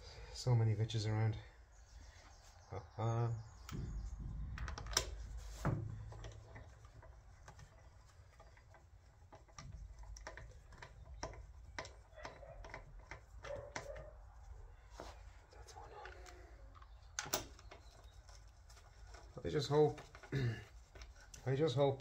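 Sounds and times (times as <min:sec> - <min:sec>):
metallic clicks of bolt threading: 0:06.0 - 0:14.0, 0:16.2 - 0:19.4.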